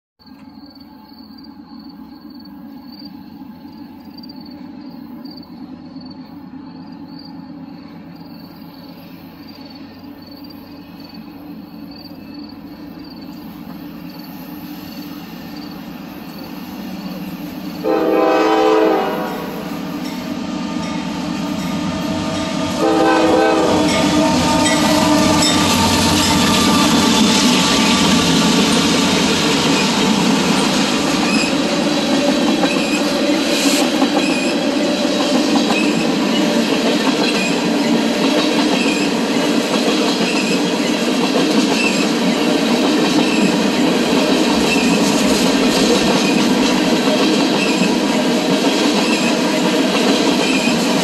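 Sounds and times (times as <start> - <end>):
diesel locomotive engine rumble: 0.3 - 51.0
locomotive horn blasts: 17.8 - 19.8, 22.5 - 26.4.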